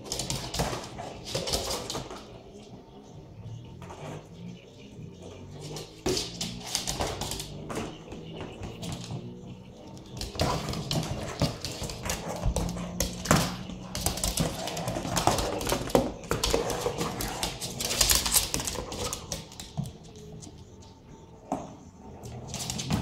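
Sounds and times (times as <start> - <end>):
dog claws clicking on wooden floor: 10.0 - 20.6.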